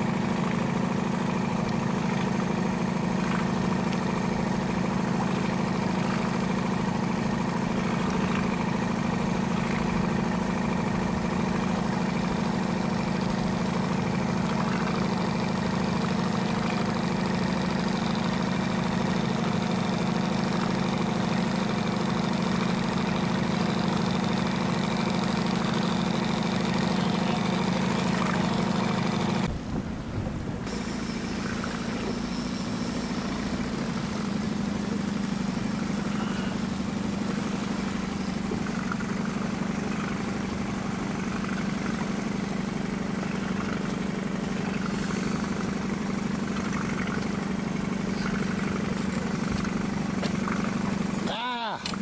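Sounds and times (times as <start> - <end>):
boat engine humming: 0.0 - 52.0.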